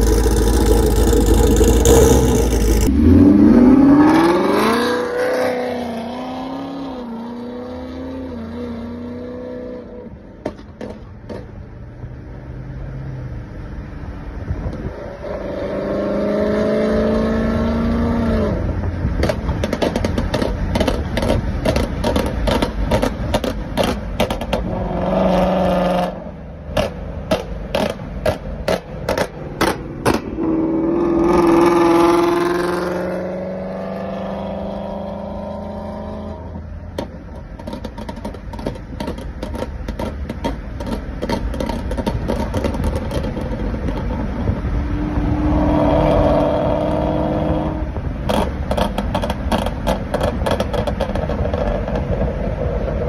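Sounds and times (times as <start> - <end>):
car exhaust revving hard: 0.0 - 9.8, 15.2 - 53.0
exhaust cracks and pops: 19.1 - 24.7, 36.9 - 44.6, 48.2 - 53.0.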